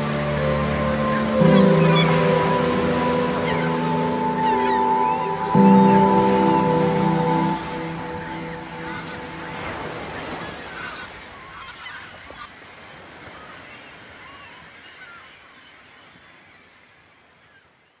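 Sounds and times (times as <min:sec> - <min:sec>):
geese honking in flight: 0:00.2 - 0:07.3.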